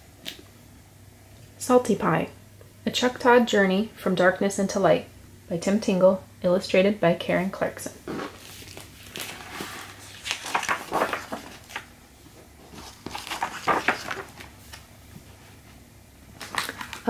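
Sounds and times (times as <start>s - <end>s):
book pages turning: 8.1s - 11.9s, 12.6s - 14.9s, 16.4s - 17.0s.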